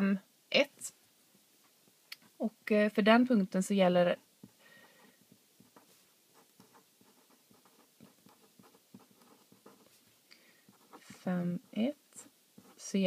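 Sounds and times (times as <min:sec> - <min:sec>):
pen writing on paper: 0:05.6 - 0:10.0, 0:10.7 - 0:11.2.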